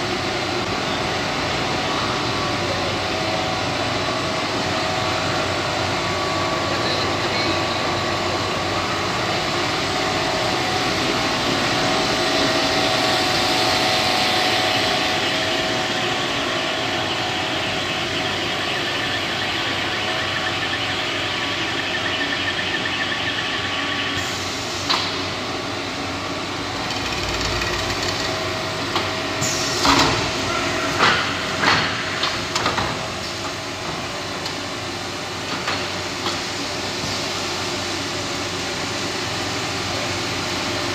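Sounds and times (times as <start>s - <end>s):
machine humming and whirring: 0.0s - 40.9s.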